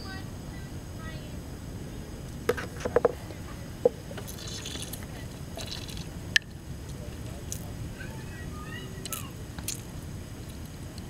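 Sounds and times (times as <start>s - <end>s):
plastic cup knocking on wooden table: 2.5s - 3.2s.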